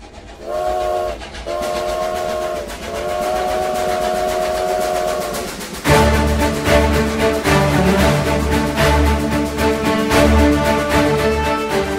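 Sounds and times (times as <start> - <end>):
steam locomotive whistle: 0.4 - 8.2.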